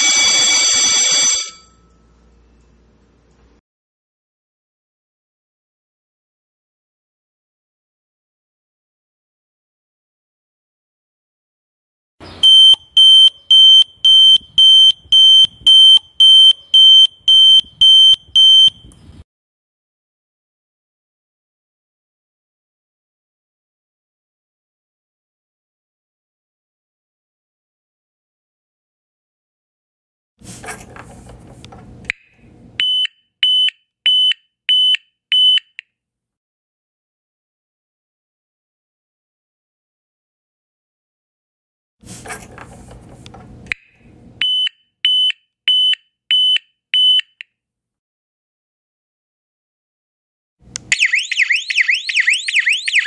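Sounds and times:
gas detector alarm beeps: 12.4s - 18.9s, 32.8s - 35.8s, 44.4s - 47.4s, 50.9s - 53.0s
click: 50.7s - 50.9s.

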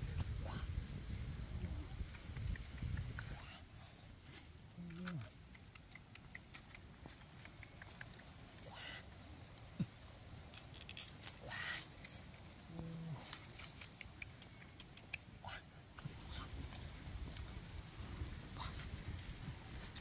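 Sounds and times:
cactus stems rustling and crackling: 1.7s - 20.0s.

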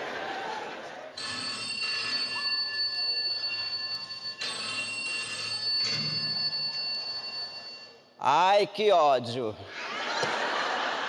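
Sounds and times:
telephone ringing: 1.2s - 8.1s.

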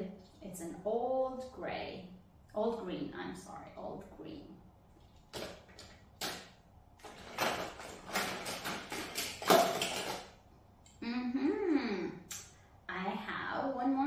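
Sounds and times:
toy cars rattling in plastic bin: 7.0s - 10.3s.

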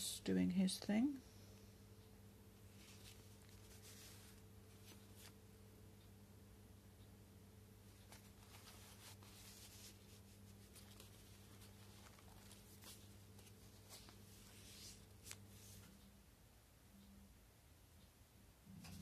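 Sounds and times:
low steady hum: 0.0s - 19.0s
paper pages rustling: 2.8s - 5.4s, 7.9s - 16.0s.

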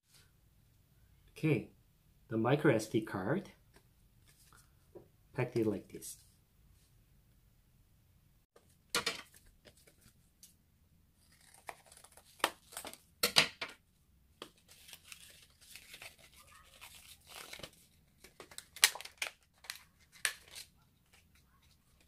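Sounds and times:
plastic blister pack tearing: 11.2s - 13.0s, 14.7s - 20.7s.

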